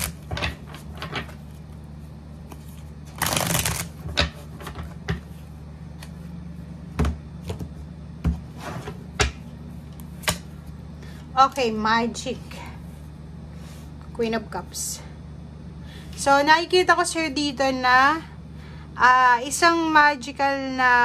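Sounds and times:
cards riffle shuffling: 2.5s - 4.0s.

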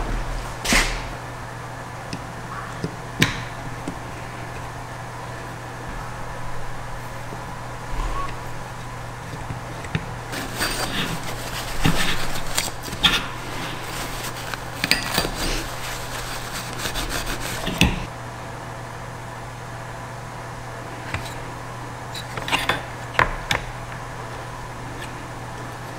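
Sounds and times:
paper towel scratchy rubbing: 10.3s - 18.1s.

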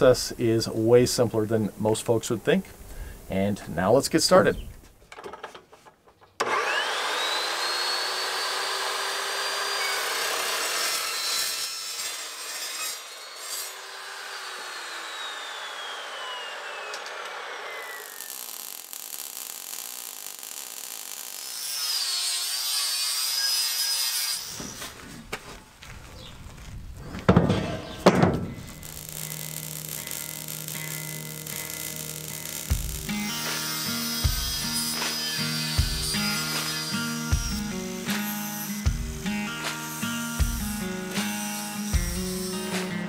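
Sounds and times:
chop saw cutting steel: 6.4s - 25.0s, 27.8s - 43.0s.

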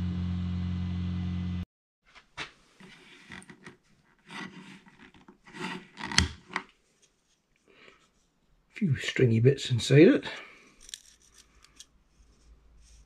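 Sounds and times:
plastic part scraping and rubbing: 2.8s - 7.4s, 10.8s - 13.0s.

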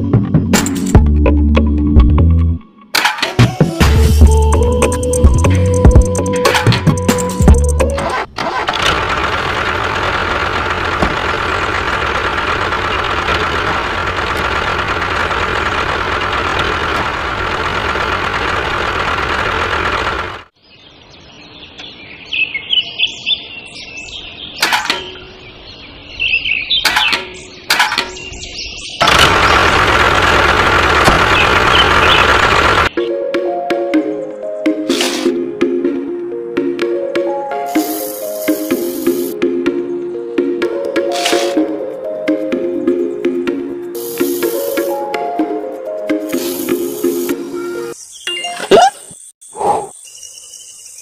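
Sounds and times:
miniature tractor engine running: 8.1s - 20.5s, 29.0s - 32.9s
birds chirping: 20.1s - 30.0s, 31.2s - 33.1s, 37.7s - 40.4s, 46.1s - 51.0s.

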